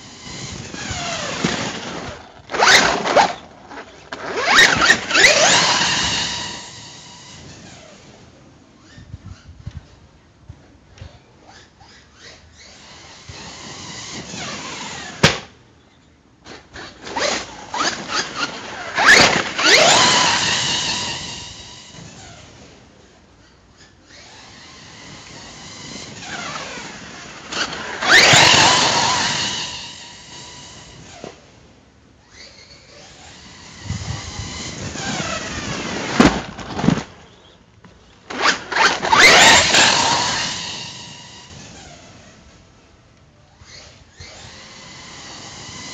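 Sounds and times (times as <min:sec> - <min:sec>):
electric motor whining: 0:00.0 - 0:08.1, 0:17.1 - 0:22.6, 0:24.2 - 0:31.5, 0:32.3 - 0:36.2, 0:38.3 - 0:42.6, 0:43.6 - 0:45.9.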